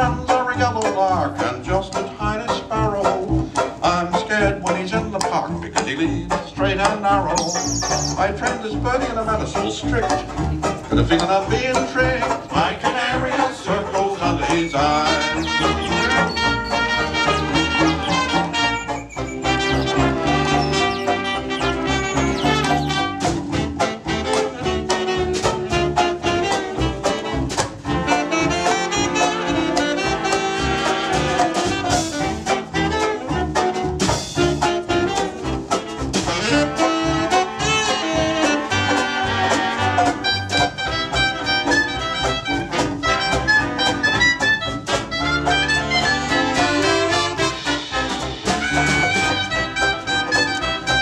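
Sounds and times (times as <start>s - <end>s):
big band jazz playing: 0.0s - 51.0s.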